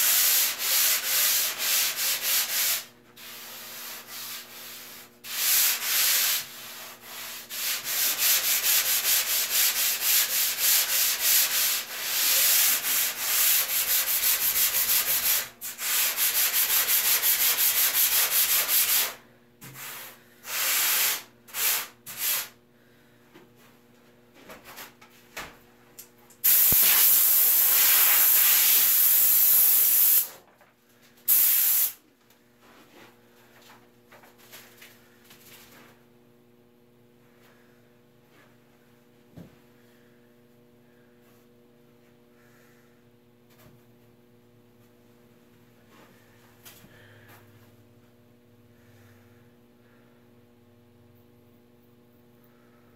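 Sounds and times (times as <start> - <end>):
sanding block rubbing foam: 0.0 - 19.2.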